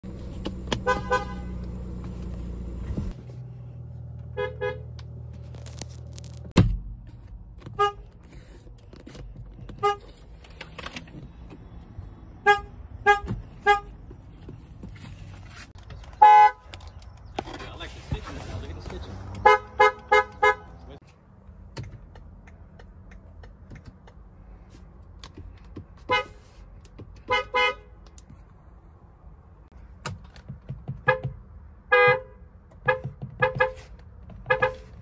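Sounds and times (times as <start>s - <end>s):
car horn toots: 0.8s - 1.7s, 4.3s - 4.9s, 7.8s - 8.0s, 12.4s - 14.0s, 16.2s - 16.6s, 19.4s - 20.8s, 27.3s - 27.9s, 31.0s - 33.9s, 34.5s - 34.9s
sharp thump: 6.4s - 7.0s.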